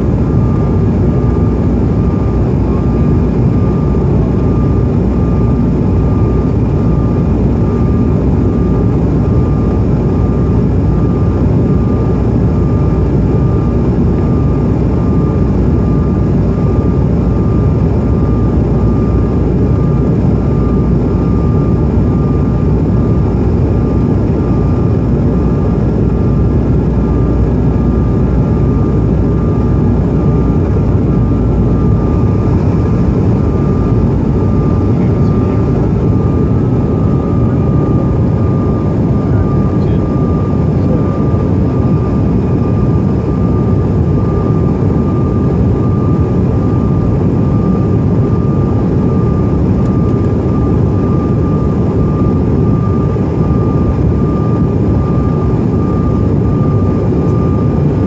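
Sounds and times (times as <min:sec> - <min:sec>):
jet cabin rumble: 0:00.0 - 0:58.0
thin steady whine: 0:00.0 - 0:58.0.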